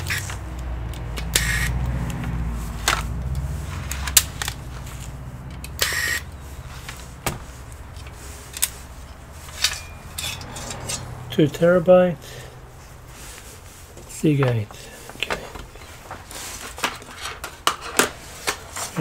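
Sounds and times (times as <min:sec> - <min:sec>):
electric screwdriver whirring: 0:01.0 - 0:02.0, 0:05.7 - 0:06.3.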